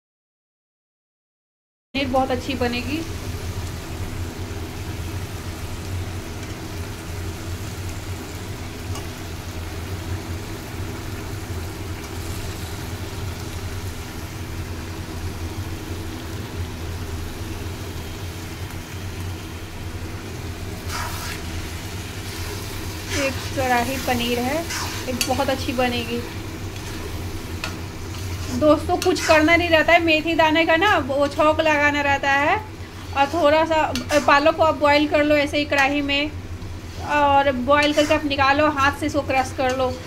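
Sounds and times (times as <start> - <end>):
gravy simmering with hiss: 2.3 - 40.0.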